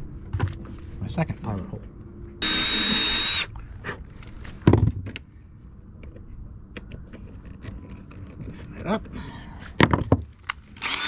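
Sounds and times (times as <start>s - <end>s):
cordless drill whine: 2.4s - 3.5s, 10.8s - 11.0s.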